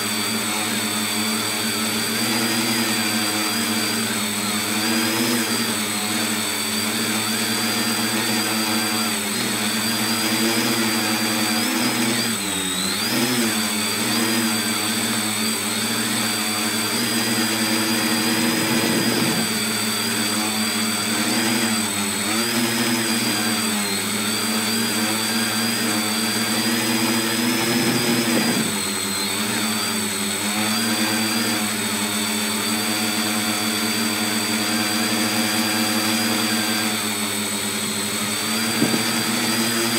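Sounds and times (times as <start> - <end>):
drone propellers buzzing: 38.3 - 39.9.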